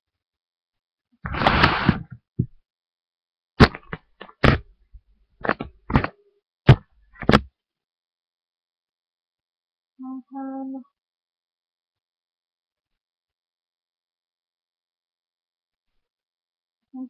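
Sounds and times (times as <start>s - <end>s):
objects knocking and bumping: 3.6s - 4.7s, 5.4s - 7.5s.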